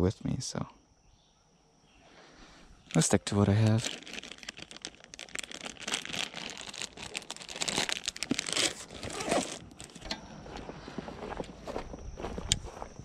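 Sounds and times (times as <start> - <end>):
plastic bag crinkling: 2.8 - 10.0.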